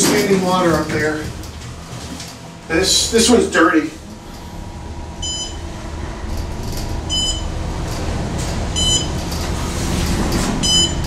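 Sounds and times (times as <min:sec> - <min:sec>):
elevator car humming: 0:00.0 - 0:11.0
elevator short high beeps: 0:05.2 - 0:05.7, 0:07.1 - 0:07.5, 0:08.7 - 0:09.2, 0:10.6 - 0:11.0.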